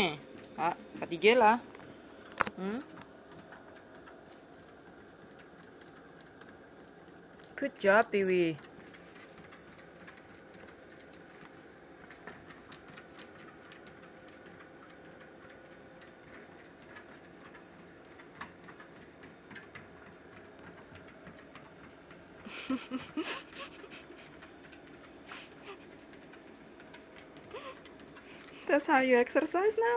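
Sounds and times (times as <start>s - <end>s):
treadmill running: 0.0s - 29.9s
dog paws pattering on belt: 3.2s - 29.9s.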